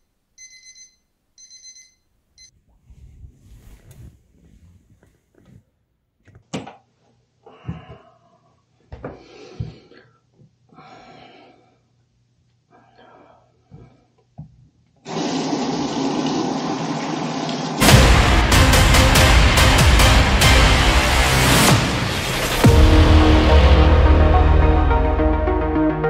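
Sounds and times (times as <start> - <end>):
sink tap water running: 15.1 - 17.8.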